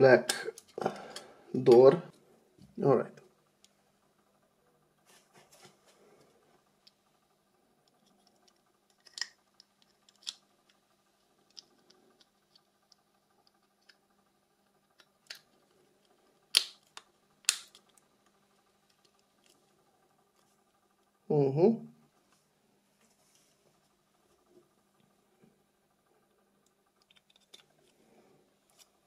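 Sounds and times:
phone parts clicking and snapping: 7.9 - 10.4, 27.0 - 27.7.

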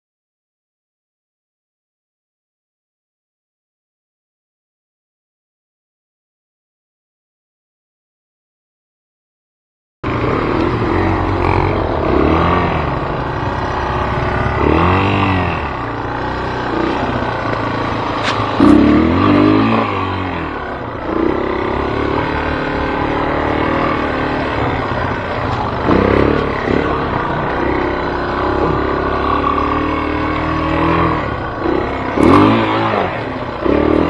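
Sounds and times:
vehicle engine revving: 10.0 - 34.0.

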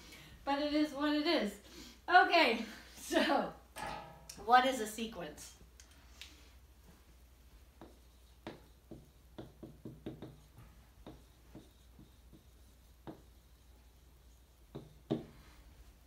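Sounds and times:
marker writing on whiteboard: 7.7 - 15.5
marker tapping on whiteboard: 7.8 - 13.4, 14.7 - 15.4.

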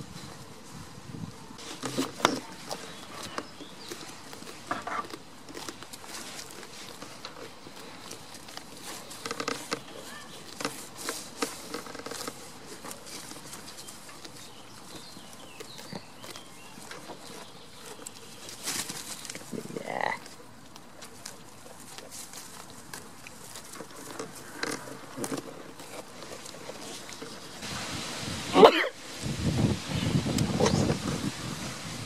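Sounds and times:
light rustles and clicks: 1.6 - 15.0.

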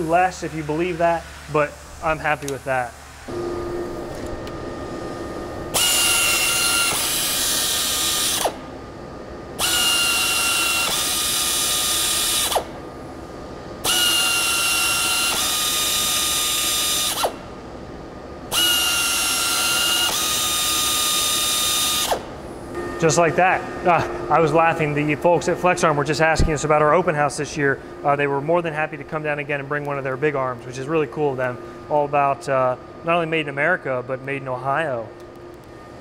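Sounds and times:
pneumatic air motor running: 0.0 - 8.8, 9.6 - 13.2, 13.8 - 17.5, 18.5 - 26.7.

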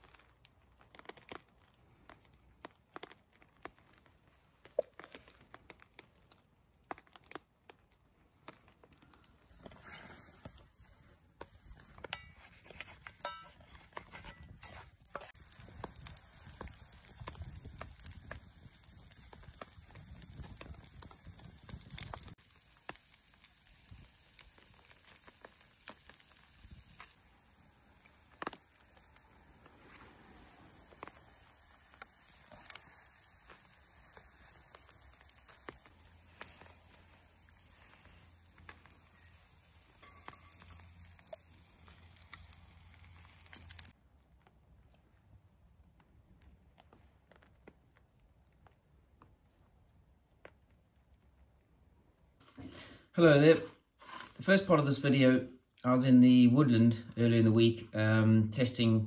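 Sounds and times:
batter sizzling in oil: 0.0 - 44.0
burning kindling crackling: 0.0 - 58.0.

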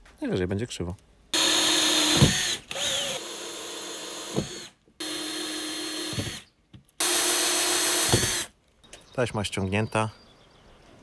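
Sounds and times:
cordless drill whining: 1.4 - 8.5.

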